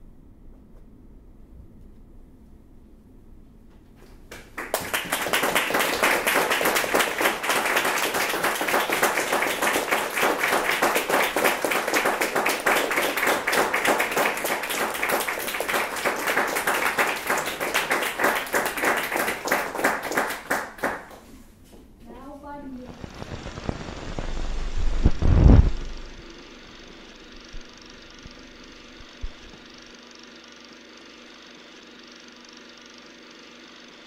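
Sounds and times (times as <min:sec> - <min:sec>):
audience applauding: 0:04.3 - 0:21.3.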